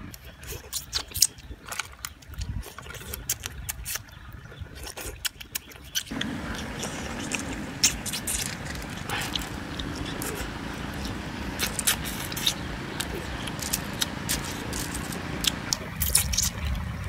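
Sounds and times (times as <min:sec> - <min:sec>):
chopsticks clicking on snail shells: 0:05.5 - 0:16.6
background hiss: 0:06.1 - 0:15.7.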